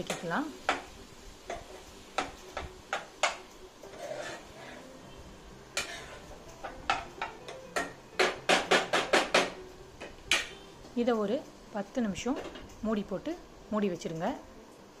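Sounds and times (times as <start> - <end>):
spatula scraping a cooking pan: 1.4 - 5.0, 5.7 - 7.3.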